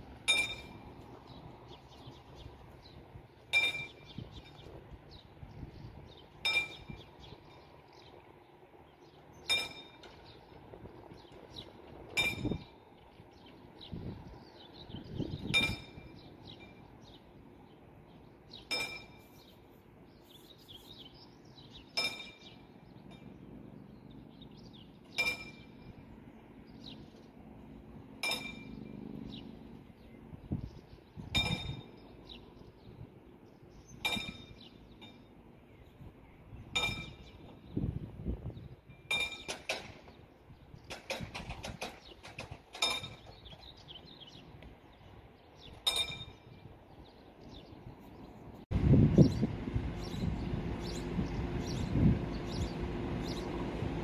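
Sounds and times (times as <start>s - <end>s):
level crossing warning bell: 0.2s - 1.0s, 9.5s - 10.2s, 15.6s - 17.0s, 18.7s - 19.4s, 22.0s - 23.6s, 25.1s - 26.1s, 28.2s - 29.1s.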